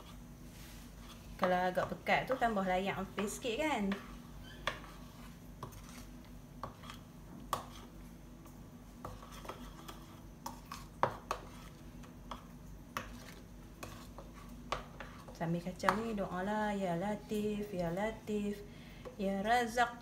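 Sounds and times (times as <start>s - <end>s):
spoon scraping and knocking pot: 9.0s - 16.1s.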